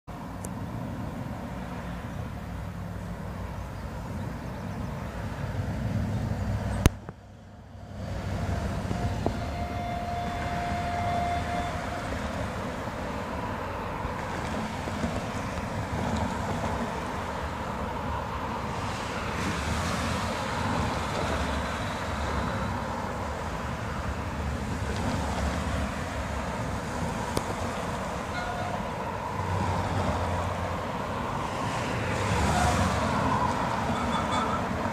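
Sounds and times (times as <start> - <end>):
distant road traffic: 0.0 - 34.9
wind on microphone: 7.9 - 13.0.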